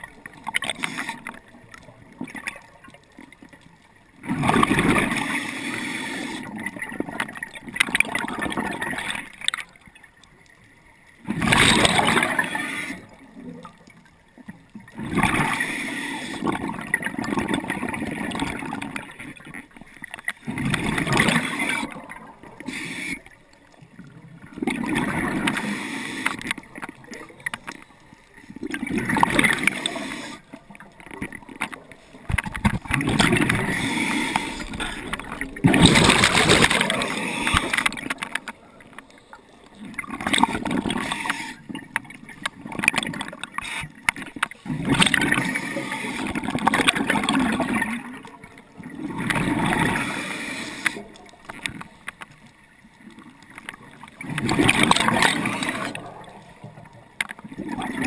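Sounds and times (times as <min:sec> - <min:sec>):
exhaled bubbles gurgling: 0:00.0 - 0:09.9, 0:11.2 - 0:58.0
scuba regulator breath hiss: 0:05.2 - 0:06.5, 0:12.4 - 0:13.2, 0:15.5 - 0:16.5, 0:22.6 - 0:23.4, 0:25.4 - 0:26.5, 0:29.5 - 0:30.6, 0:33.5 - 0:35.1, 0:36.8 - 0:38.0, 0:40.9 - 0:41.7, 0:45.5 - 0:46.4, 0:49.8 - 0:51.2.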